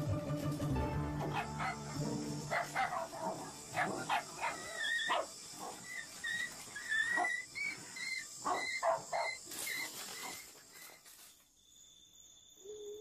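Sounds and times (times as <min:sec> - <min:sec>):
dog barking: 0:01.3 - 0:05.8, 0:07.1 - 0:07.4, 0:08.4 - 0:09.4.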